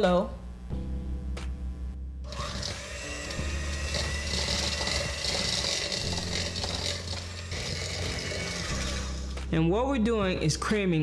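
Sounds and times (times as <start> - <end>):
electric hand mixer running: 2.3 - 9.4
beaters scraping through mixture: 2.3 - 9.5.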